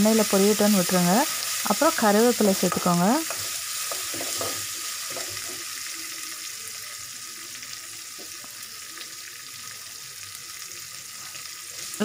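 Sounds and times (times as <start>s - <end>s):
oil sizzling in a pan: 0.0s - 12.0s
ladle stirring against pan: 2.6s - 5.8s.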